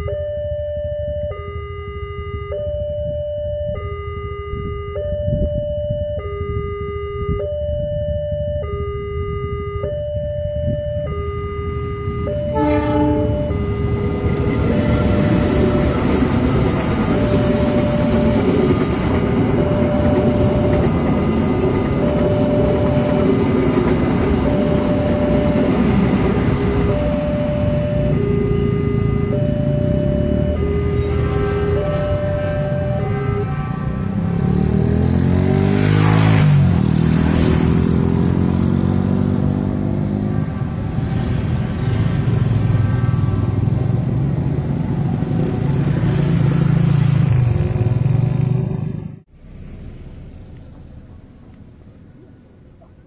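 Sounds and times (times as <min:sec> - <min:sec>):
two-tone crossing alarm: 0:00.0 - 0:47.3
train rumbling over rails: 0:12.1 - 0:38.0, 0:40.4 - 0:52.0.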